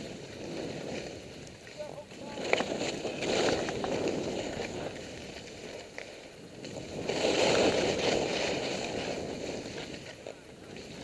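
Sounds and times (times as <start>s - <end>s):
skis scraping over snow: 0.0s - 11.0s.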